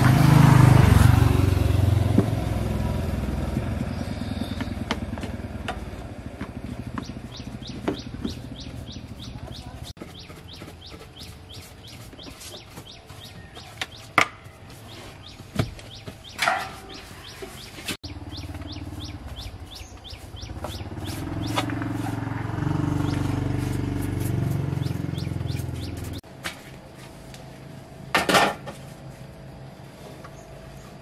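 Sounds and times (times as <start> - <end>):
bird chirping: 3.7 - 5.2, 6.6 - 22.2, 22.8 - 26.2.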